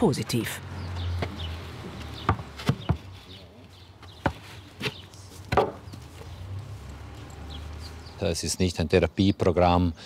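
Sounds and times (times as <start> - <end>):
donkey hooves on dirt: 0.7 - 8.2
footsteps on dirt: 0.8 - 8.2.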